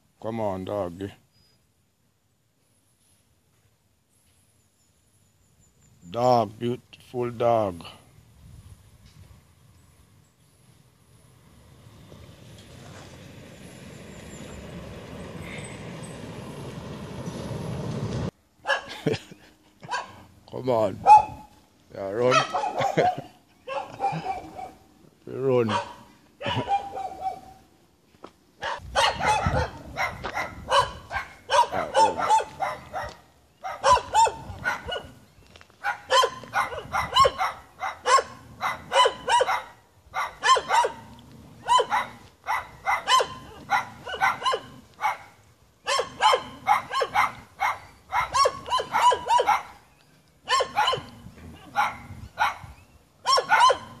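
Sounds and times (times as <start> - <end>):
dogs barking: 18.6 - 19.0, 19.8 - 20.3, 21.0 - 21.5, 22.2 - 24.9, 25.6 - 27.7, 28.6 - 35.2, 35.8 - 54.0.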